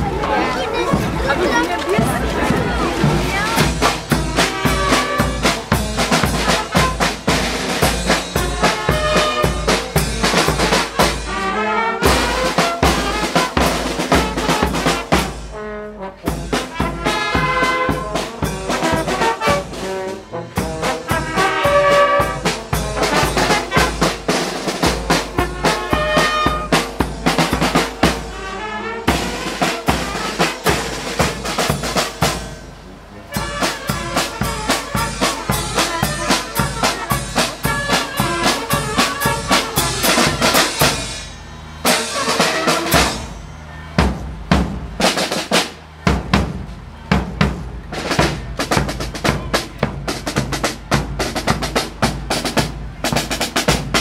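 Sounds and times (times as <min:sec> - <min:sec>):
snare drum beat: 0:00.0 - 0:15.3, 0:20.6 - 0:28.4, 0:33.3 - 0:43.3, 0:44.0 - 0:54.0
brass band playing: 0:00.0 - 0:54.0.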